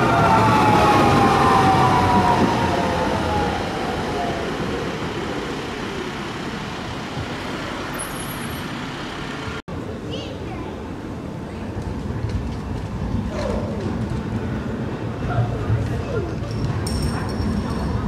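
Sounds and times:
tram motors whining: 0.0s - 9.6s
tram running gear rumble: 0.0s - 10.1s, 10.7s - 18.0s.

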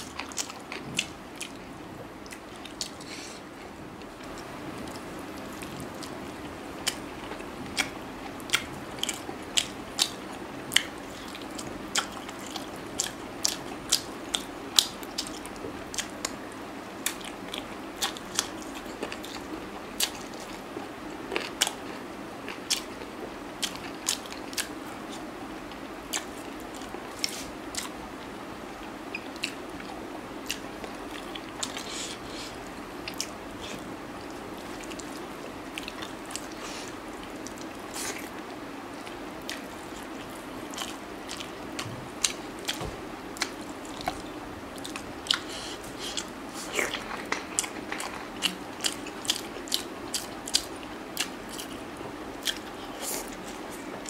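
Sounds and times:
chewing and mouth smacks: 2.2s - 3.2s, 6.8s - 16.4s, 39.0s - 54.0s.

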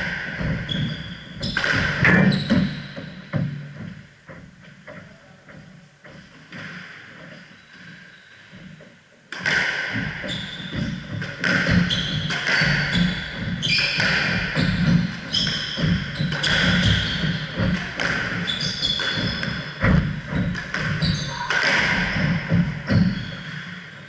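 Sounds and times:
shoe squeaks: 0.4s - 3.3s, 7.4s - 8.4s, 10.2s - 17.6s, 18.4s - 20.0s, 20.9s - 23.9s
squash ball cracking off walls: 1.4s - 2.7s, 9.3s - 23.6s.

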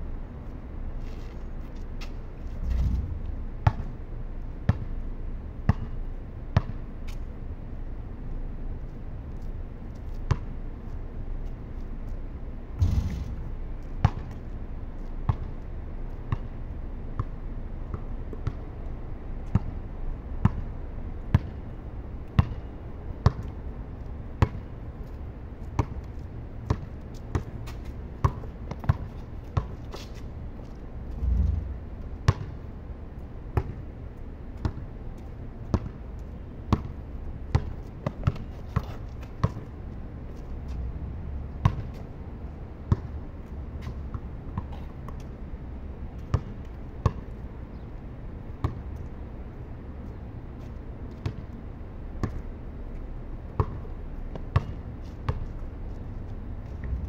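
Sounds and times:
basketball bouncing on concrete: 2.7s - 4.0s, 4.7s - 4.9s, 5.7s - 6.0s, 6.6s - 6.8s, 10.3s - 10.5s, 12.8s - 14.4s, 15.3s - 15.5s, 17.9s - 18.7s, 20.4s - 20.6s, 21.3s - 21.5s, 22.3s - 22.6s, 25.8s - 29.7s, 31.1s - 32.6s, 33.6s - 33.8s, 35.7s - 36.0s, 36.7s - 39.7s, 41.6s - 42.0s, 42.9s - 43.1s, 46.3s - 47.2s, 53.6s - 55.5s.

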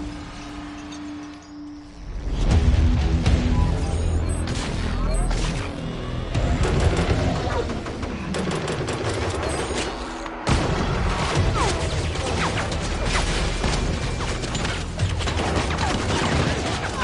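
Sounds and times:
rapid rifle gunfire: 6.4s - 10.0s, 10.8s - 17.0s.

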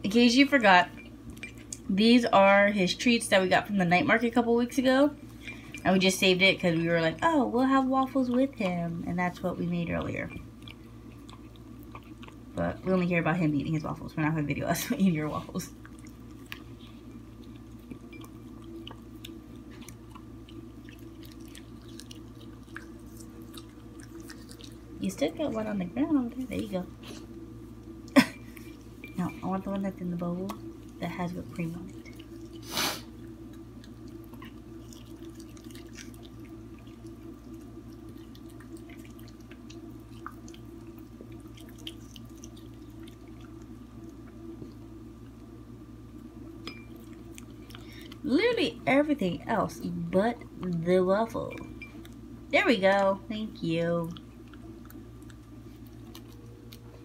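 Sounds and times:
steady low hum: 0.0s - 57.0s
puppy chewing food: 8.1s - 13.3s, 15.4s - 25.7s, 26.4s - 45.5s, 46.1s - 48.4s, 54.0s - 57.0s.

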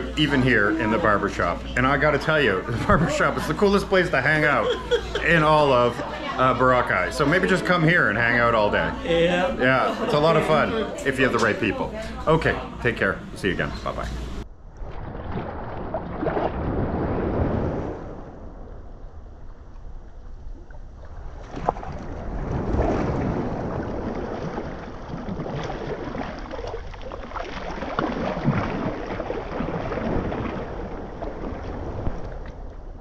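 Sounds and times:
wind on microphone: 14.5s - 26.7s, 28.1s - 33.0s
water sloshing as person wades: 14.6s - 33.0s
small waves lapping: 19.5s - 33.0s.

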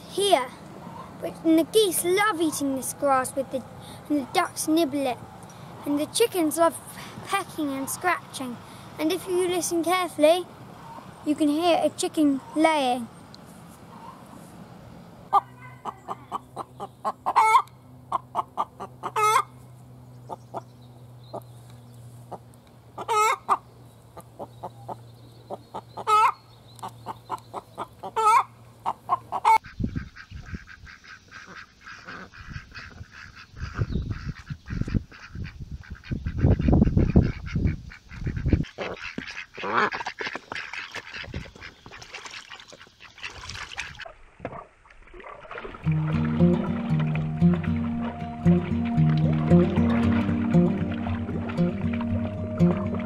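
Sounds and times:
hen cackling: 15.3s - 19.5s, 23.0s - 23.6s, 26.0s - 26.4s, 27.3s - 40.1s
ducks quacking: 27.0s - 42.2s, 45.8s - 53.0s.

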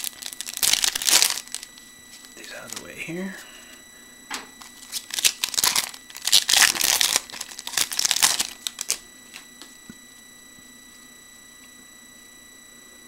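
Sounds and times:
card pack wrapper crinkling: 0.0s - 1.7s, 2.6s - 2.9s, 4.8s - 9.0s
faint high-pitched fan whine: 0.0s - 13.0s.

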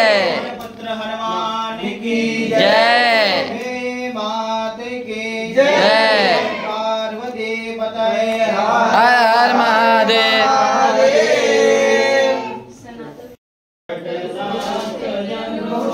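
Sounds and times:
voices chanting: 0.0s - 0.6s, 1.3s - 4.5s, 5.2s - 7.2s, 8.2s - 12.7s.

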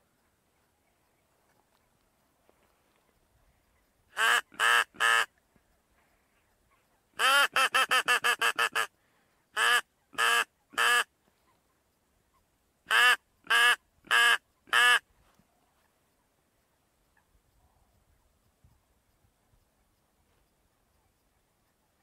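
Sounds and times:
duck quacking: 4.1s - 5.3s, 6.7s - 8.9s, 9.6s - 11.6s, 12.9s - 15.0s.

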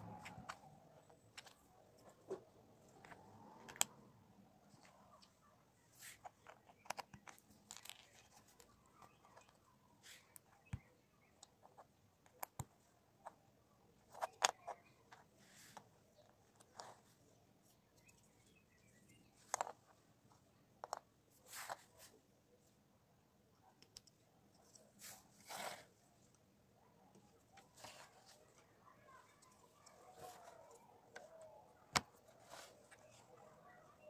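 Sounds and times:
plastic pieces clicking: 6.2s - 9.6s, 19.4s - 19.8s.

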